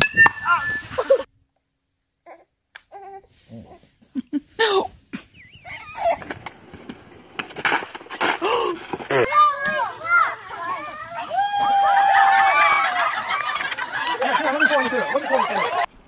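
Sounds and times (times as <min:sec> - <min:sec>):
laughter: 0:12.0 - 0:15.9.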